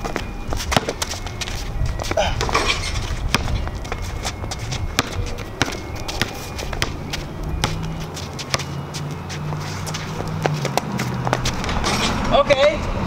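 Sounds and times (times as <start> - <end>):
basketball bouncing on concrete: 0.0 - 12.8.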